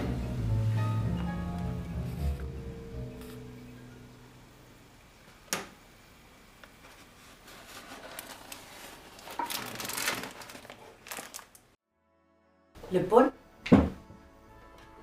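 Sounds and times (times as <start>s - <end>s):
paper bag rustling: 6.8s - 11.8s.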